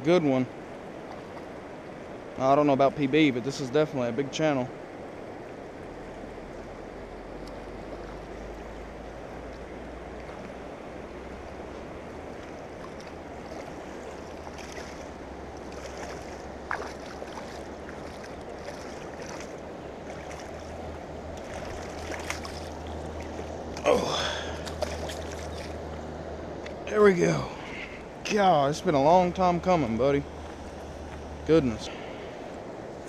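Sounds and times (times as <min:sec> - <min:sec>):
river water rushing: 0:00.0 - 0:33.0
fish splashing in shallows: 0:11.4 - 0:25.9.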